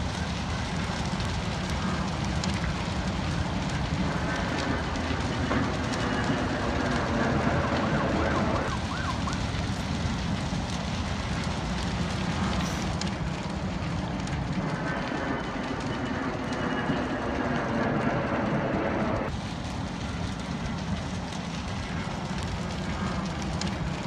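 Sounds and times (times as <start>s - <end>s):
steady low rumble: 0.0s - 24.0s
distant siren wailing and yelping: 5.5s - 10.1s.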